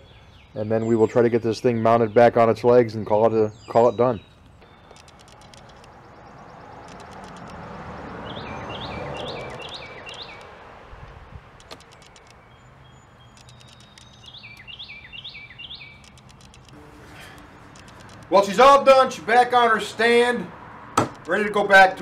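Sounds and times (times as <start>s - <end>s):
outdoor background noise: 0.0s - 22.0s
songbird whistling: 8.2s - 10.4s, 12.0s - 16.0s.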